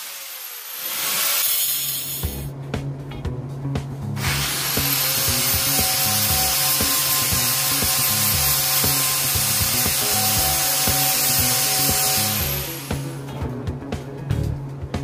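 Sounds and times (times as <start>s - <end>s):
angle grinder cutting steel: 0.0s - 2.5s, 4.2s - 13.3s
background music bass line: 2.2s - 15.0s.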